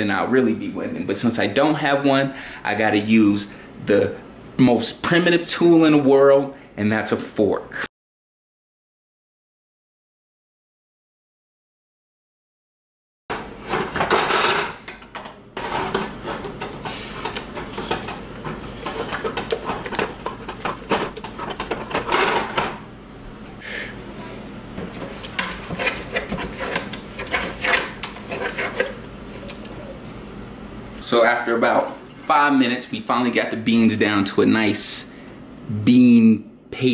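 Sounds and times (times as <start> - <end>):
metal fork scraping a pot: 15.6 - 22.2, 25.4 - 29.0.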